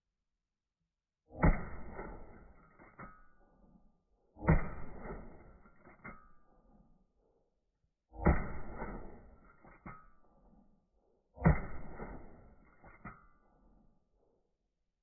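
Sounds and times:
slowed shotgun shots: 1.3s - 3.2s, 4.4s - 6.9s, 8.1s - 10.6s, 11.4s - 13.4s.

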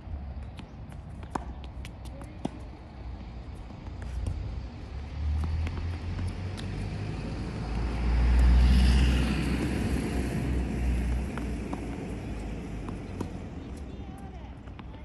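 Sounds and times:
tennis ball strikes: 1.1s - 2.7s, 9.6s - 15.0s
vehicle passing with low rumble: 3.0s - 14.0s.

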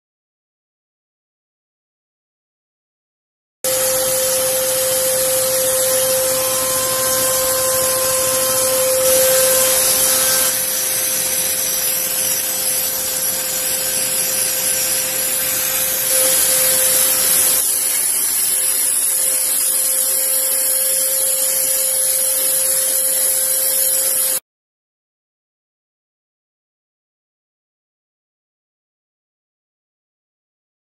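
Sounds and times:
machine whine: 3.7s - 24.4s
steam hissing: 3.7s - 24.4s.

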